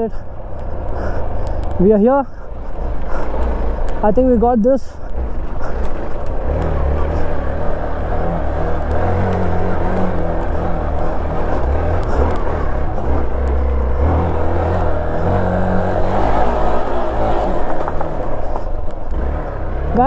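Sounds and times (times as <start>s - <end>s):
motorcycle engine at low revs: 0.0s - 20.0s
faint clicks: 0.5s - 1.8s, 17.7s - 19.2s.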